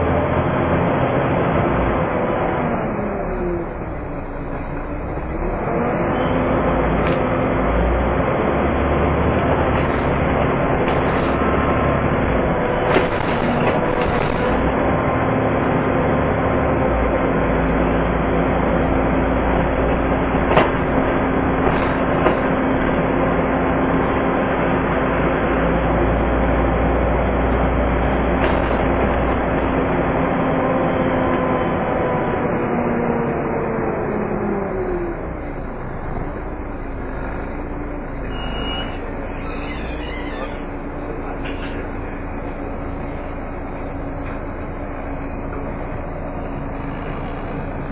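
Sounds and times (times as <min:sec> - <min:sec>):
bus engine and road noise: 0:00.0 - 0:47.9
cooling fan whine: 0:19.3 - 0:47.9.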